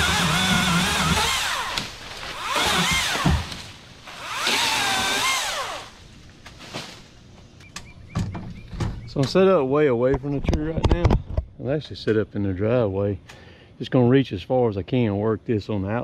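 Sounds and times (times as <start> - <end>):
chainsaw running: 0.0 - 6.0.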